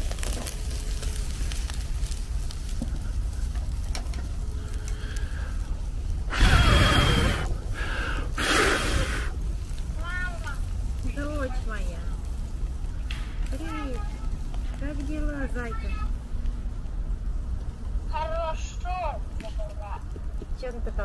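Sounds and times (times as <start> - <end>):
chicken grilling over charcoal: 0.0 - 21.0
low steady rumble: 0.0 - 21.0
loud breathy rushes of noise: 4.4 - 9.7.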